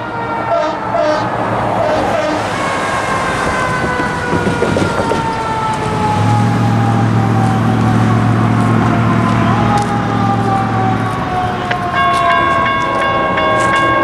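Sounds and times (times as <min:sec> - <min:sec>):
locomotive air horn blast: 0:00.0 - 0:02.7.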